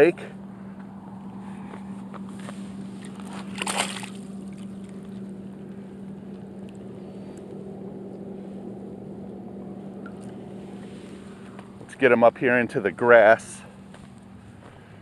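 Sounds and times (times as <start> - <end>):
steady low hum: 0.0 - 15.0
fish splashing at water surface: 3.0 - 5.2.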